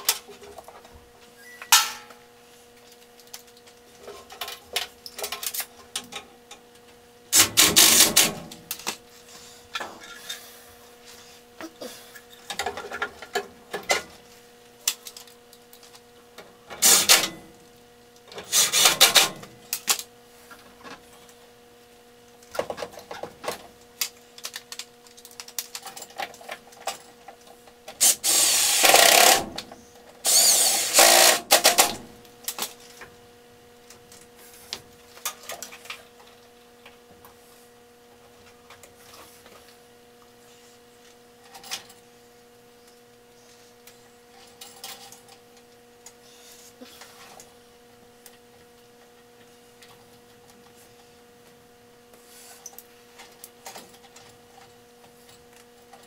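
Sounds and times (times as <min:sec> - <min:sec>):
faint steady hum: 0:00.0 - 0:56.0
cordless drill driving screws: 0:16.8 - 0:17.2, 0:28.0 - 0:29.5, 0:30.2 - 0:32.0.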